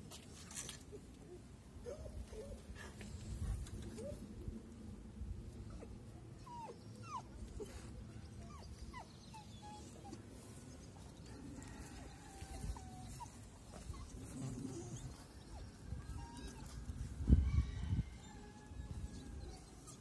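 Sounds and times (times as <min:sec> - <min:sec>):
puppy whimpering: 0:05.8 - 0:10.2, 0:12.4 - 0:16.8.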